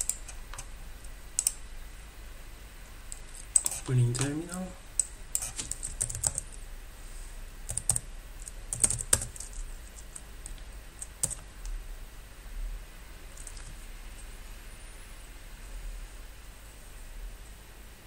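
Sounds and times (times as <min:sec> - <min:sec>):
computer keyboard typing: 0:00.0 - 0:00.7, 0:01.4 - 0:01.6, 0:03.2 - 0:04.4, 0:05.0 - 0:06.6, 0:07.7 - 0:11.5, 0:13.4 - 0:13.7.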